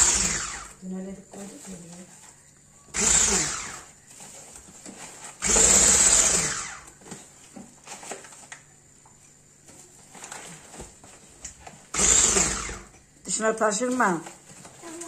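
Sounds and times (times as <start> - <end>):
electric hand mixer whirring: 0.0 - 0.8, 2.9 - 4.0, 5.4 - 7.0, 11.9 - 13.0.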